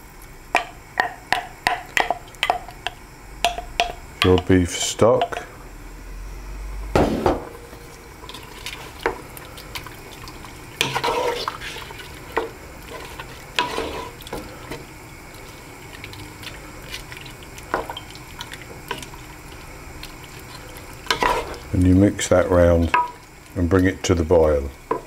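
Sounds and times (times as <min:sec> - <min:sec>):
spoon knocking and scraping pot: 0:00.6 - 0:04.5, 0:05.2 - 0:05.5, 0:10.8 - 0:14.8, 0:21.1 - 0:21.6, 0:22.9 - 0:23.2
wet sloshing of stirred stock: 0:07.7 - 0:25.0.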